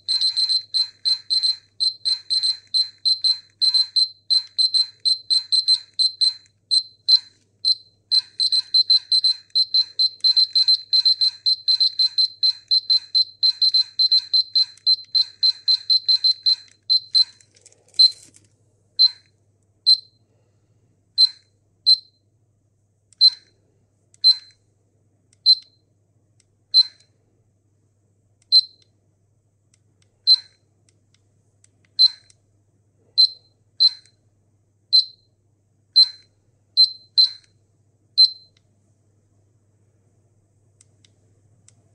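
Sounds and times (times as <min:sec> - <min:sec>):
radiation detector beeping: 0:00.0 - 0:18.3.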